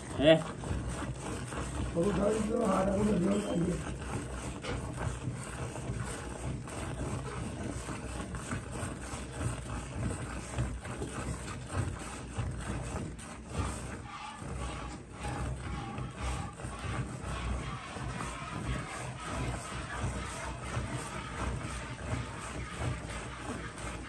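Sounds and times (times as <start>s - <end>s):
steady low hum: 12.6s - 24.0s.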